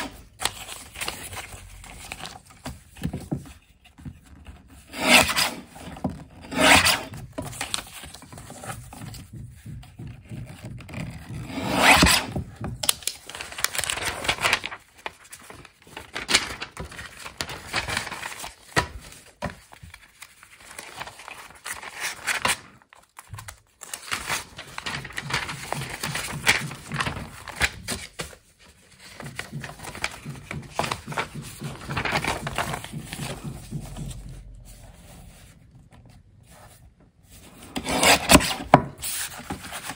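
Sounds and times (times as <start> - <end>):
paper rubbed and scraped: 4.0 - 12.4, 24.1 - 27.7, 29.2 - 35.8, 36.4 - 39.9.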